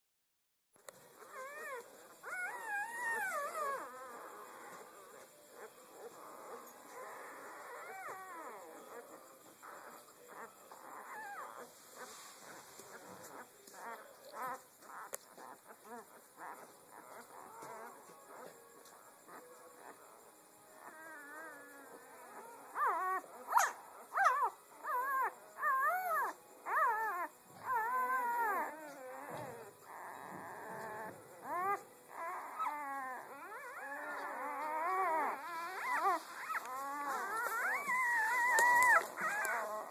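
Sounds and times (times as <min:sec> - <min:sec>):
puppies whimpering and squeaking: 0:01.1 - 0:39.9
puppy squeal: 0:01.3 - 0:04.8, 0:22.3 - 0:39.9.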